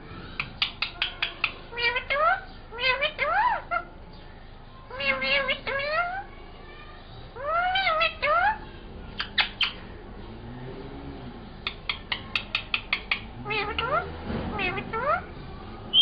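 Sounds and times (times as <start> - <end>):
parakeet mimicking meow: 0.8 - 3.9, 4.9 - 6.3, 7.4 - 8.6, 11.9 - 15.3.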